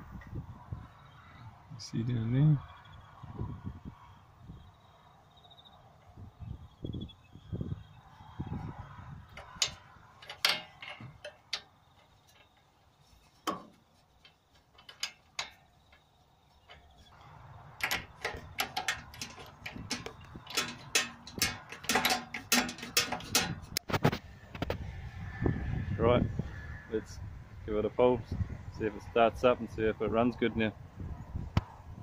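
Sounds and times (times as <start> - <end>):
sharp metallic clicks: 9.3 - 12.7, 13.4 - 24.7.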